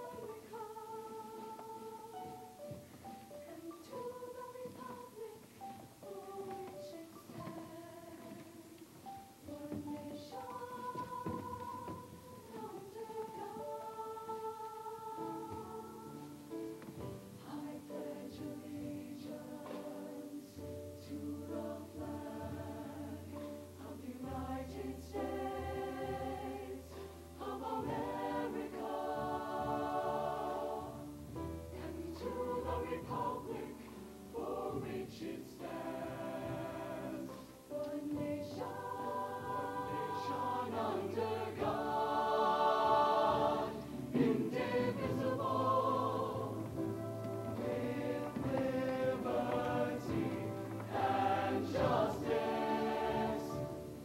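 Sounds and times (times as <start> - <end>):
choir singing in parts: 0.0 - 54.0.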